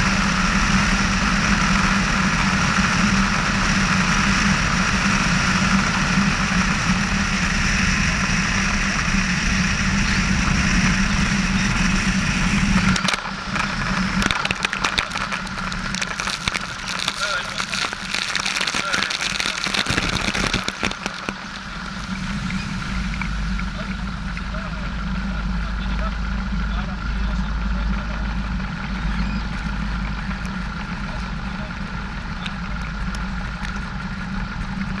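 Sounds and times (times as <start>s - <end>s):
light aircraft engine running: 0.0s - 35.0s
floats splashing on water: 13.4s - 22.0s.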